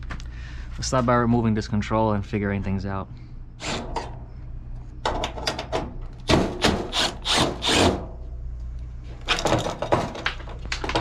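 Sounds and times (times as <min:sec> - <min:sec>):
steady low hum: 0:00.0 - 0:11.0
tools clattering on metal and wood: 0:05.0 - 0:06.8, 0:09.2 - 0:11.0
cordless drill bursts: 0:06.9 - 0:08.0.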